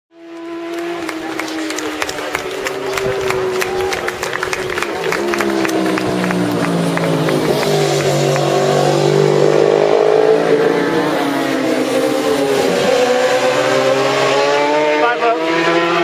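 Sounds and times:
racing motorcycles passing: 0.2s - 16.0s.

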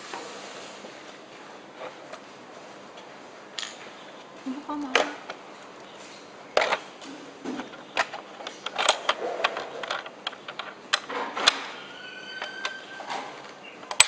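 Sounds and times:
clicks of metal locks and plastic frames: 7.5s - 14.0s.

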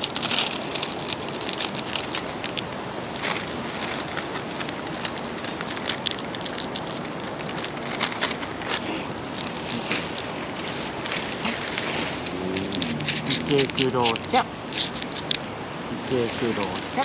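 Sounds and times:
cat crunching dry kibble: 0.0s - 15.5s
steady hiss: 0.0s - 17.0s.

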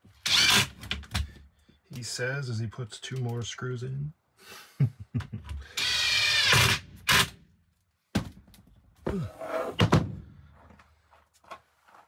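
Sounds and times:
cordless drill driving screw: 0.2s - 0.8s, 5.7s - 7.3s.

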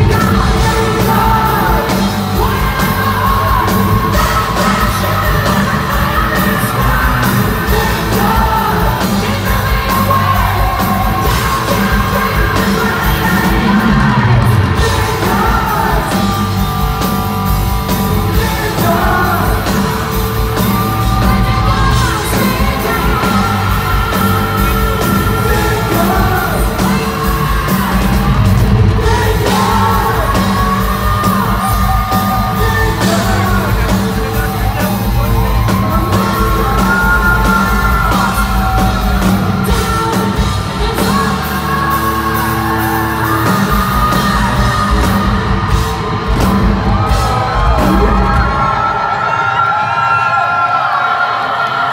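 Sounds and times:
man singing and yelling: 0.0s - 46.1s
live hard rock band playing: 0.0s - 49.7s.

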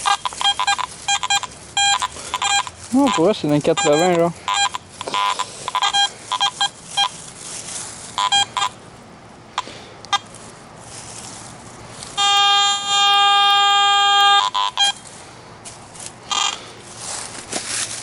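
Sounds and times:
metal detector beeps: 0.0s - 7.2s, 8.2s - 8.8s, 9.6s - 10.3s, 12.2s - 15.1s, 16.3s - 16.6s
metal detector steady tone: 0.0s - 7.2s, 8.1s - 8.8s, 9.6s - 10.4s, 12.0s - 15.2s, 16.0s - 16.7s.

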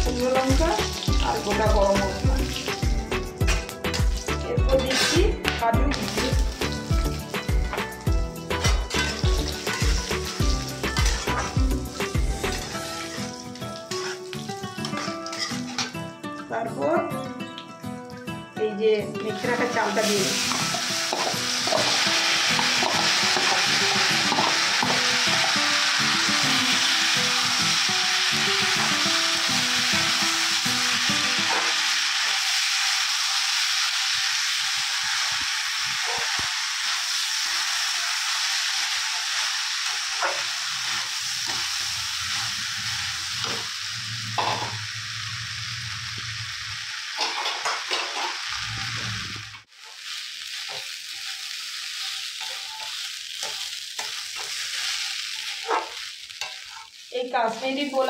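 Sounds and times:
rice sizzling in hot fat: 0.0s - 16.5s, 19.2s - 58.0s
spatula scraping a metal pan: 8.5s - 10.0s, 13.9s - 16.0s.

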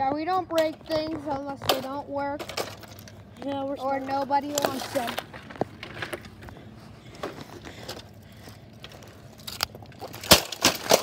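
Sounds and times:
plastic pieces clattering in grass: 1.5s - 3.2s, 8.8s - 11.0s.

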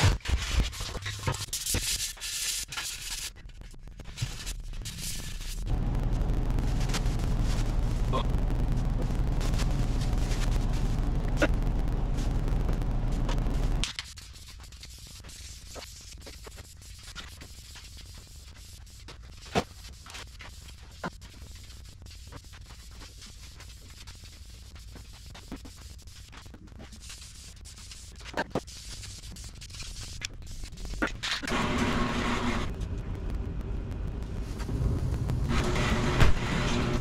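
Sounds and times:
sandpaper scratching rub: 0.0s - 3.4s.

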